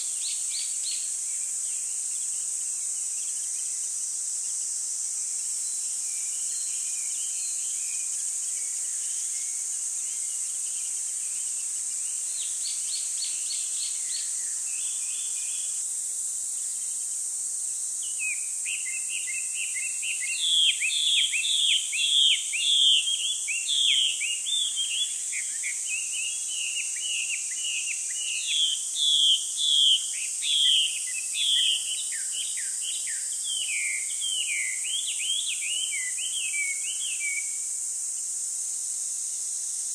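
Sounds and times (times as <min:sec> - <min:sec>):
steady high hiss: 0:00.0 - 0:39.9
songbirds chirping: 0:18.0 - 0:37.5.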